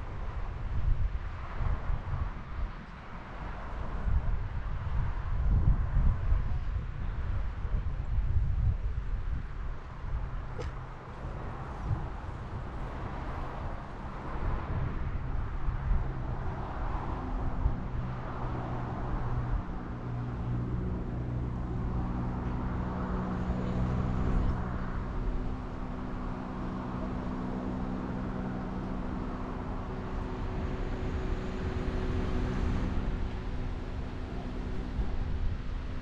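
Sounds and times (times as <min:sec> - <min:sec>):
traffic rumble: 0:00.0 - 0:36.0
vehicle engine humming: 0:09.8 - 0:36.0.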